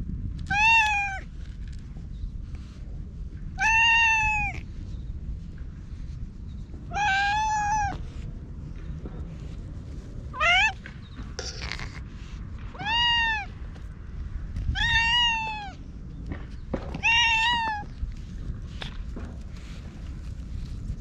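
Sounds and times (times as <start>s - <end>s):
cat meowing: 0.4s - 1.3s, 3.6s - 4.6s, 6.9s - 8.0s, 10.4s - 10.8s, 12.7s - 13.5s, 14.7s - 15.8s, 17.0s - 17.9s.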